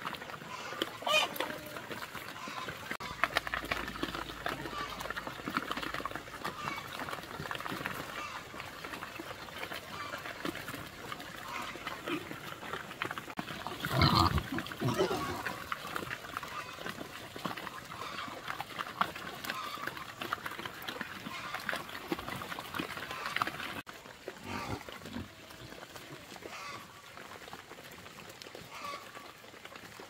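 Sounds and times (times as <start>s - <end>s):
pigs grunting: 0.0s - 27.4s
pig squealing: 13.7s - 15.8s.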